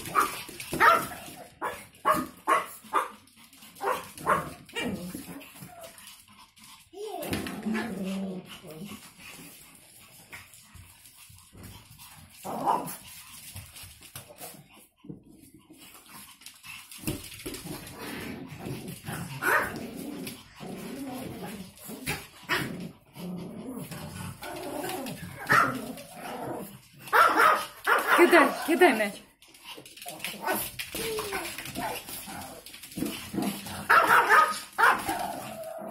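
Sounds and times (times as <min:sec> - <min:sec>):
small dogs barking: 0:00.0 - 0:03.2, 0:03.8 - 0:05.0, 0:19.4 - 0:19.8, 0:25.4 - 0:26.0, 0:27.0 - 0:28.8, 0:33.8 - 0:35.3.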